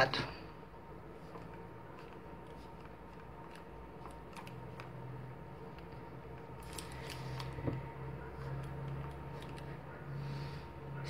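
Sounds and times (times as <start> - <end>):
faint steady hum: 0.0 - 11.0
cord rustling and clicking: 1.2 - 5.1, 5.7 - 7.8, 8.4 - 9.7.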